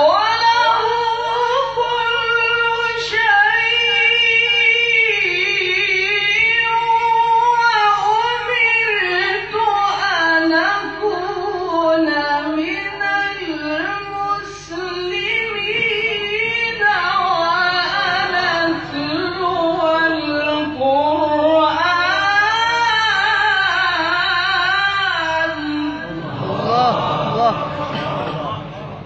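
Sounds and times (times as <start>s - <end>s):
man reciting melodically: 25.6s - 28.7s.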